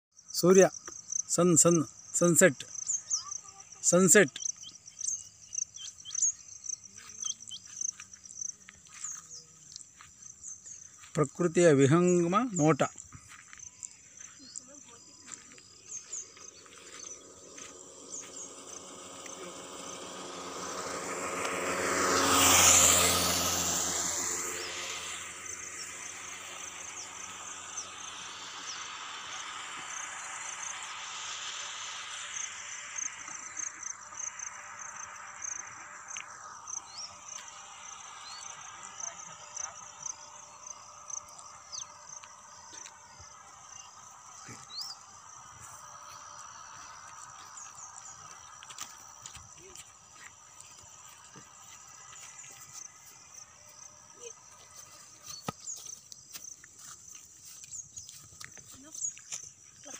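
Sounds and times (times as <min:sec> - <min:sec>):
insects chirping: 0:00.1 - 0:59.9
vehicle passing by: 0:15.3 - 0:55.8.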